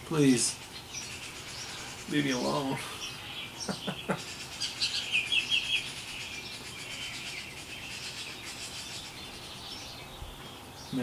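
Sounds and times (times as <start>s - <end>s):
songbirds chirping: 0.0s - 11.0s
low chuckle: 3.6s - 4.3s.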